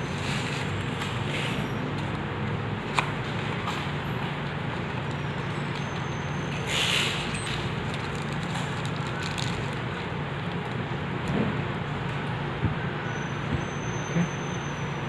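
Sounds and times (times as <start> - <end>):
plastic wrap rustling: 7.2 - 10.1.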